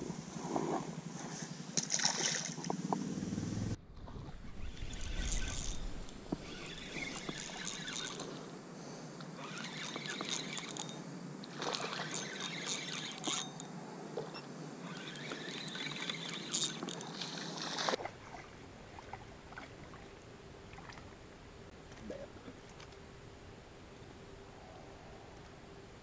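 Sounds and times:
quiet river background: 0.0 - 26.0
river water sloshing and splashing: 1.8 - 2.8, 9.4 - 13.4, 14.8 - 21.2.

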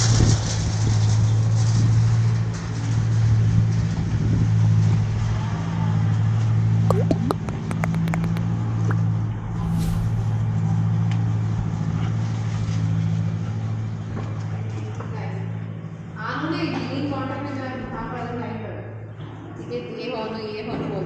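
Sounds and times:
squeaky downward chirps: 6.9 - 8.4
brief hiss: 9.6 - 10.5.

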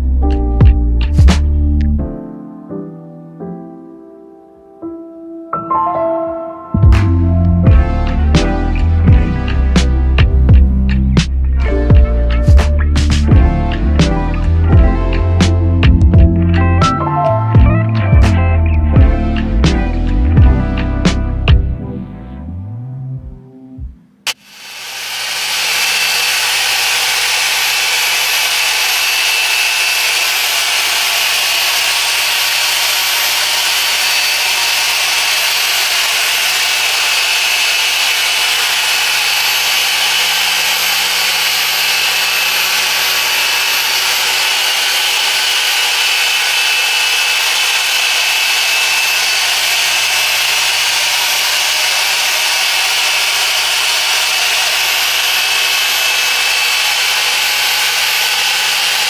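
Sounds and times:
machine polisher whirring on glass: 24.3 - 59.0.

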